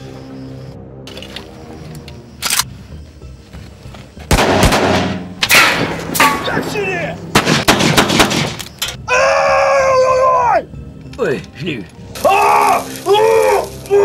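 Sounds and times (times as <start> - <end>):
gunshots with ringing tail: 4.3 - 6.4, 7.3 - 8.6.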